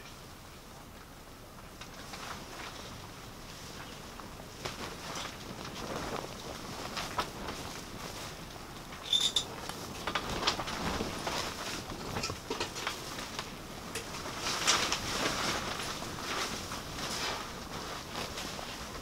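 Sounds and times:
small metal clicks and scrapes: 9.0 - 10.8.

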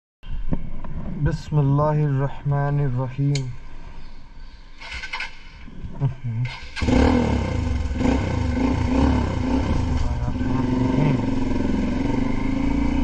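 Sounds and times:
motorcycle engine running: 6.8 - 13.0.

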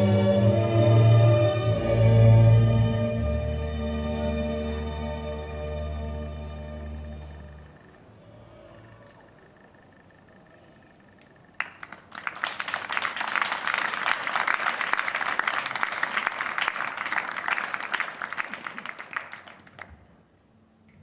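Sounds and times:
audience applauding: 11.6 - 20.0.

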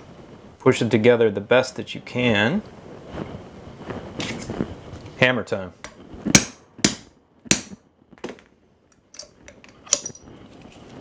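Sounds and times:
tools knocking and clinking: 6.4 - 10.3.

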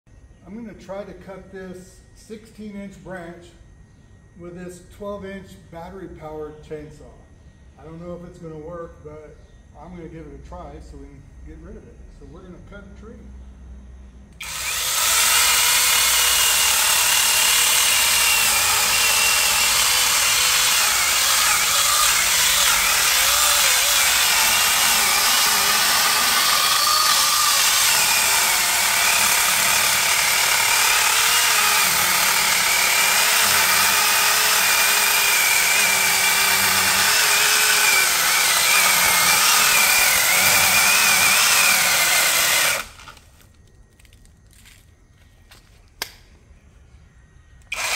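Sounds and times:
electric chainsaw cutting wood: 14.4 - 43.3, 47.7 - 47.9.

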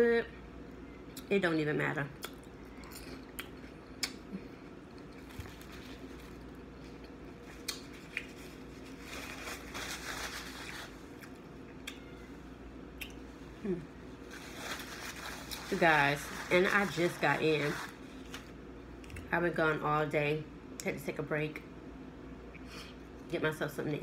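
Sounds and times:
lip smacks and chewing: 2.2 - 5.7, 6.4 - 8.4, 13.0 - 13.2
paper napkin rustling: 7.9 - 11.1, 14.2 - 18.5.

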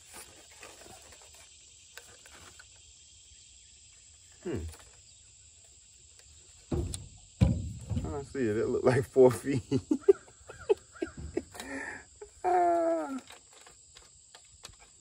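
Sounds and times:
person humming: 12.4 - 13.3.

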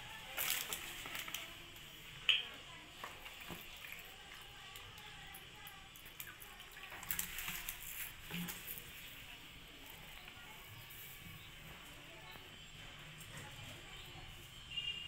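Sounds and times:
water pouring into plastic cup: 0.2 - 1.6, 3.0 - 10.9.

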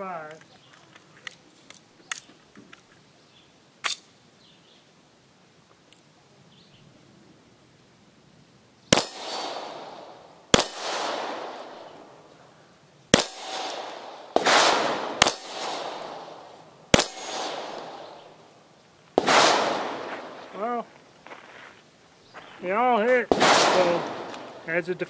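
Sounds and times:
pistol shots echoing: 8.9 - 12.2, 13.1 - 18.5, 19.2 - 20.7, 23.3 - 25.0
bullet clanging on steel plate: 17.0 - 18.2.

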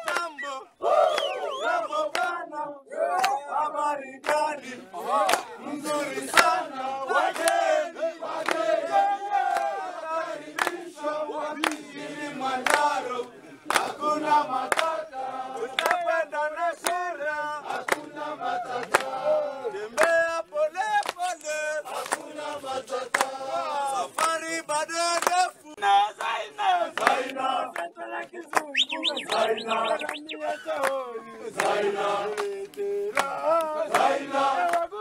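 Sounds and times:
sharp hand claps: 0.0 - 1.4, 2.1 - 2.4, 3.1 - 3.4, 4.2 - 4.5, 5.2 - 5.6, 6.2 - 6.6, 7.3 - 7.7, 8.4 - 8.7, 9.5 - 9.8, 10.5 - 10.9, 11.6 - 11.8, 12.6 - 13.0, 13.6 - 14.0, 14.6 - 16.2, 16.8 - 19.2, 19.9 - 25.6, 26.2 - 34.9
crowd singing together: 0.0 - 35.0.

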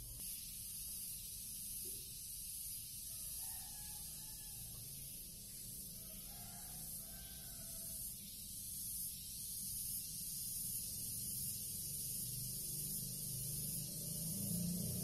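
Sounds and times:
high-pitched hiss: 0.0 - 15.0.

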